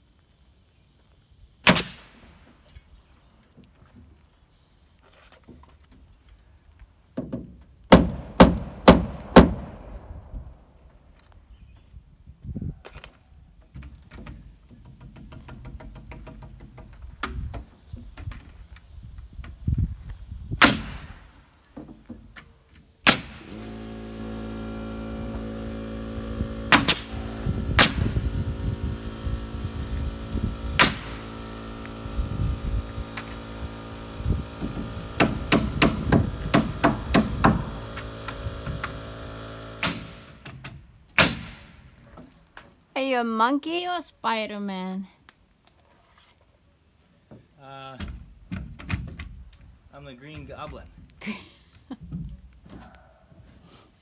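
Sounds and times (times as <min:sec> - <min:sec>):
nail gun firing: 0:01.6 - 0:02.3, 0:07.9 - 0:10.3, 0:20.6 - 0:21.4, 0:23.0 - 0:28.4, 0:29.1 - 0:32.2, 0:32.8 - 0:41.9
steady motor hum: 0:23.2 - 0:40.4.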